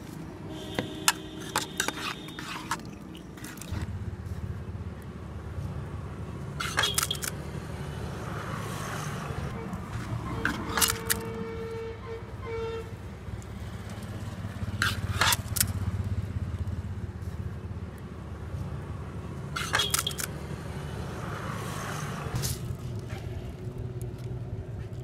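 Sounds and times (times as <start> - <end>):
street traffic rumble: 0.0 - 25.0
ladle scraping a metal pot: 1.0 - 3.9, 6.6 - 7.3, 10.3 - 11.3, 14.8 - 15.5, 19.6 - 20.2.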